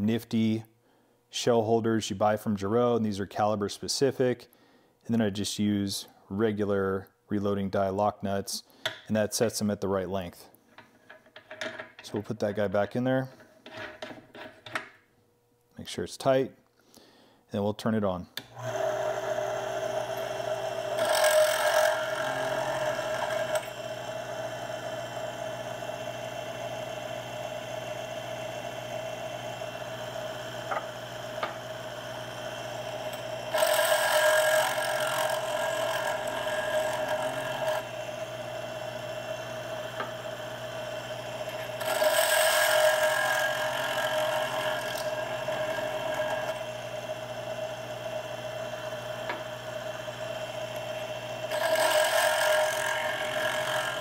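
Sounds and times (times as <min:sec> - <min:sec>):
case trimmer motor humming: 0:18.5 - 0:54.0
cutter trimming brass case: 0:19.9 - 0:24.2, 0:30.6 - 0:47.4, 0:50.2 - 0:54.0.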